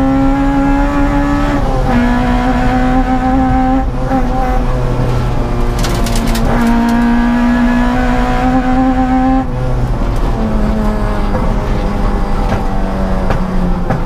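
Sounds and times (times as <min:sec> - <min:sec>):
car engine revving from inside: 0:00.0 - 0:14.0
brief clatter: 0:05.1 - 0:07.1.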